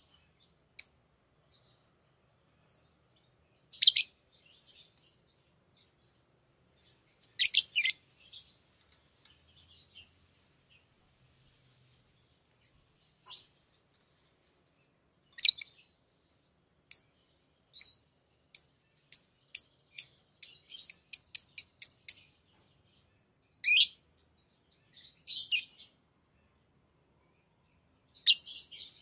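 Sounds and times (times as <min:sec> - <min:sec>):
parrot chirping: 0:03.7 - 0:04.1, 0:07.2 - 0:08.4, 0:15.3 - 0:15.8.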